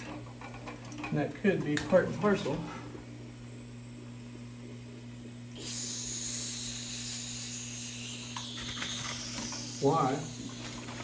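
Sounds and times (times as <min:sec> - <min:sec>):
steady low hum: 0:00.0 - 0:11.0
compressed air hissing: 0:05.5 - 0:11.0.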